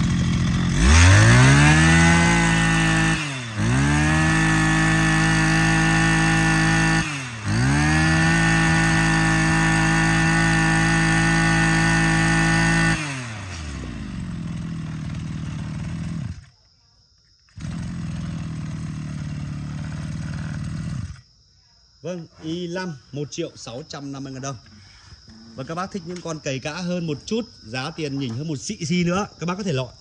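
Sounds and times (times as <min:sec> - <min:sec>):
brush cutter engine revving: 0:00.0 - 0:16.6, 0:17.5 - 0:21.3.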